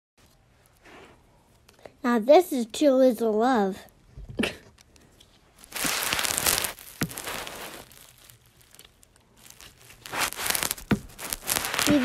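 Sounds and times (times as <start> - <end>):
crinkly crunching noise: 3.7 - 12.0.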